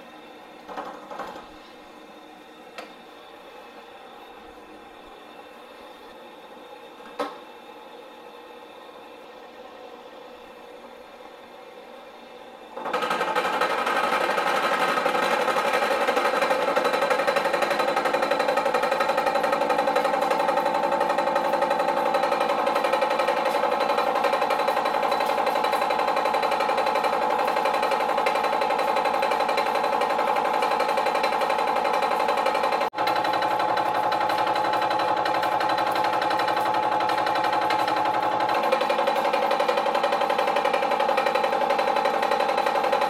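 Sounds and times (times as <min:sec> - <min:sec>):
milling cutter cutting steel: 0:12.8 - 0:43.0.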